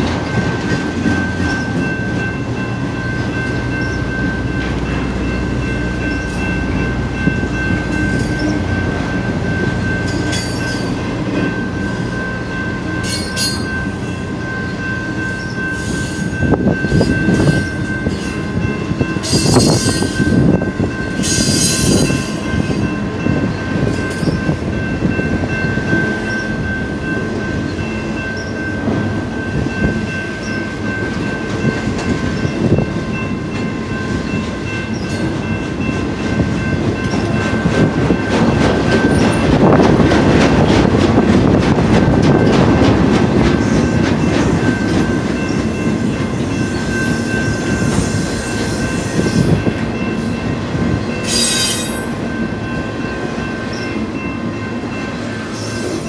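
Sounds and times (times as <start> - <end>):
crossing bell ringing: 0.0 - 56.0
train wheels clattering on rails: 0.0 - 56.0
high-pitched wheel squeal: 51.2 - 52.1.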